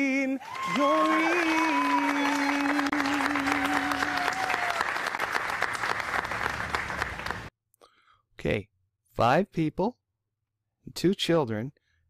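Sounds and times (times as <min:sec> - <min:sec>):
audience applauding: 0:00.4 - 0:07.5.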